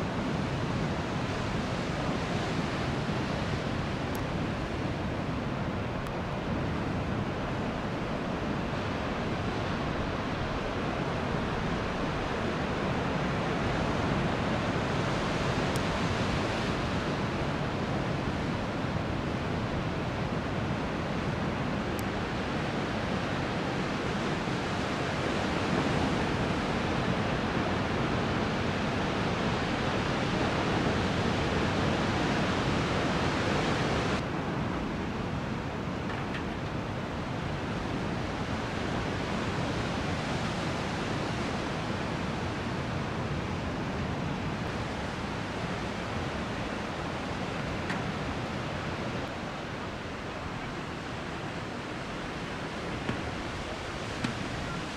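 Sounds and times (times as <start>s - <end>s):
ocean surf breaking: 36.8s - 54.9s.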